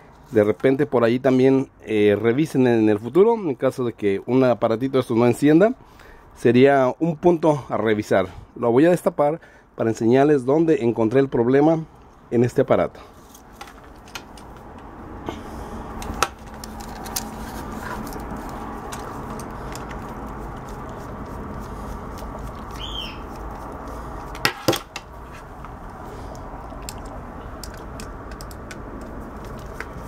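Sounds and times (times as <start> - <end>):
steady background noise: 0.0 - 30.0.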